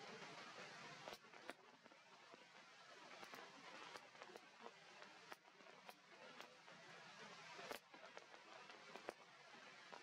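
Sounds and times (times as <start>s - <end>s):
faint outdoor hiss: 0.0s - 10.0s
soft ticks: 1.0s - 1.6s, 3.2s - 4.5s, 5.3s - 6.6s, 7.6s - 9.2s.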